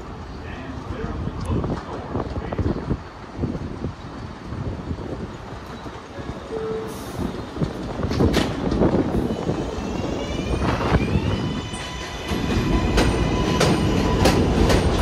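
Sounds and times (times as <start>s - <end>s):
subway train rumbling: 0.0s - 15.0s
traction motors whining: 5.3s - 15.0s.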